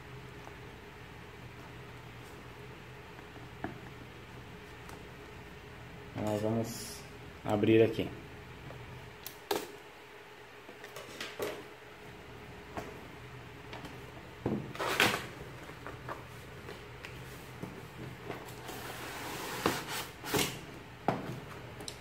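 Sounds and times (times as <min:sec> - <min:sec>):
cardboard scraping on cardboard: 0:18.6 - 0:20.6.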